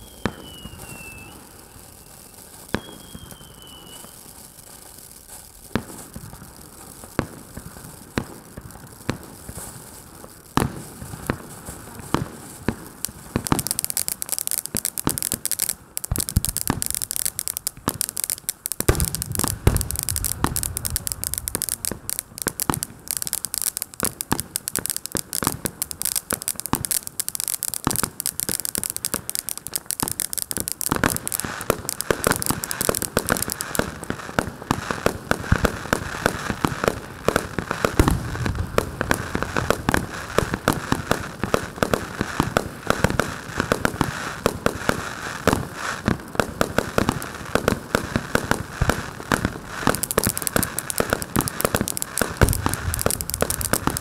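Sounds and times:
firework fountain crackling: 0:00.0 - 0:54.0
firework hiss: 0:00.0 - 0:54.0.

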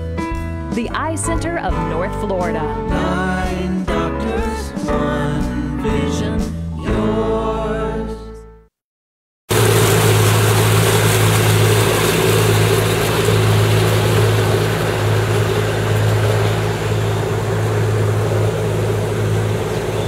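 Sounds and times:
motorboat engine humming: 0:09.5 - 0:20.0
water rushing: 0:09.5 - 0:20.0
wind: 0:09.5 - 0:20.0.

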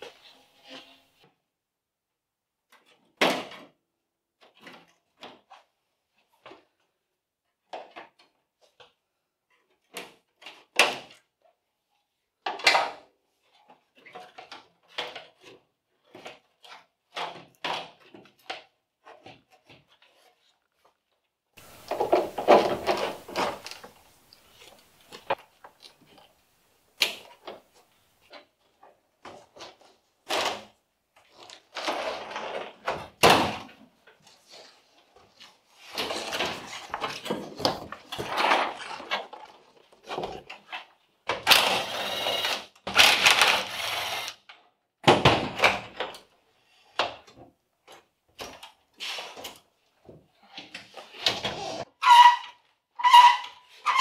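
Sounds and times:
scraping rustle: 0:21.6 - 0:26.4.

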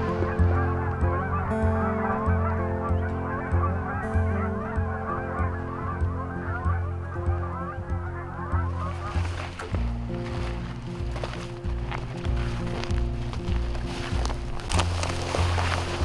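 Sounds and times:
geese honking: 0:00.0 - 0:16.0
rhythmic background music: 0:00.0 - 0:16.0.

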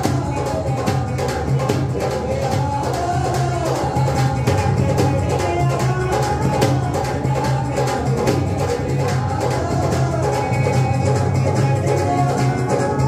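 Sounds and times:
amplified singing: 0:00.0 - 0:13.0
dholak drum playing: 0:00.0 - 0:13.0.

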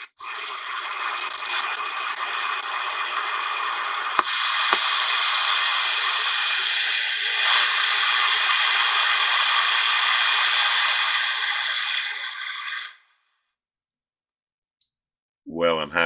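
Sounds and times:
radio static hiss: 0:00.0 - 0:13.0
radio control clicks: 0:04.2 - 0:05.1.

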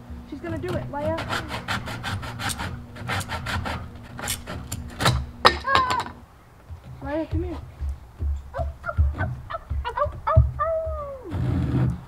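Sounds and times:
handsaw cutting wood: 0:00.4 - 0:05.6, 0:11.0 - 0:12.0.

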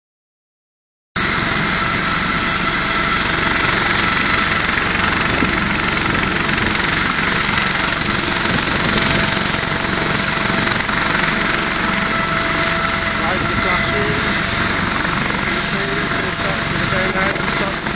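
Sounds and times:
helicopter running on ground: 0:01.2 - 0:17.9.

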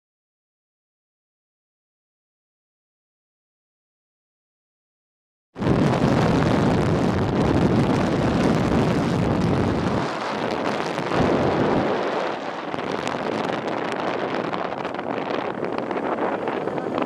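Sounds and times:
wind buffeting microphone: 0:05.6 - 0:17.0.

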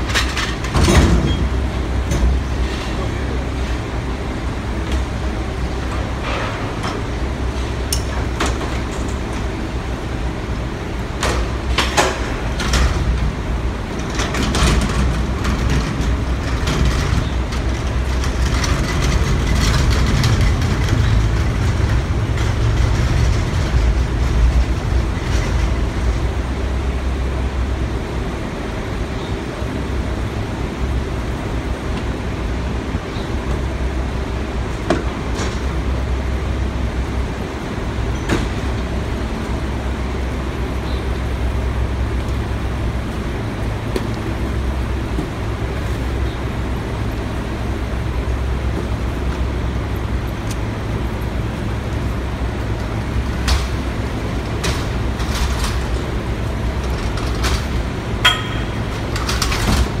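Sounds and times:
garbage truck diesel engine idling: 0:35.7 - 1:00.0.

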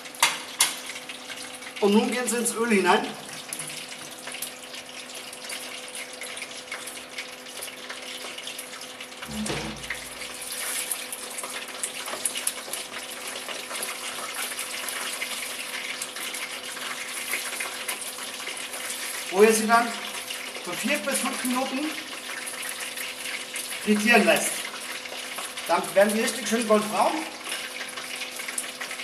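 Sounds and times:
food deep-frying in oil: 0:00.0 - 0:29.0
low thump: 0:09.3 - 0:10.2.

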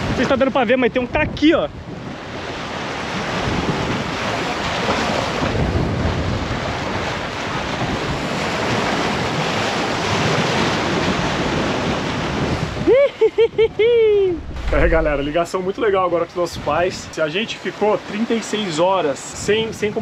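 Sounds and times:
wind buffeting microphone: 0:13.6 - 0:16.0
ocean water rushing: 0:14.2 - 0:15.9.

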